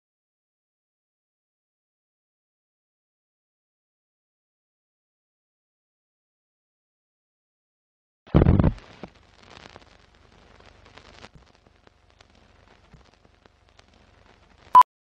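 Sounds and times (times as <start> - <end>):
film soundtrack crackle: 8.3 - 14.8.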